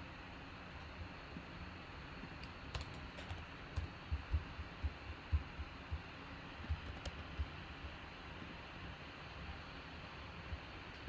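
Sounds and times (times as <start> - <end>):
computer keyboard typing: 2.4 - 5.7, 6.6 - 7.6.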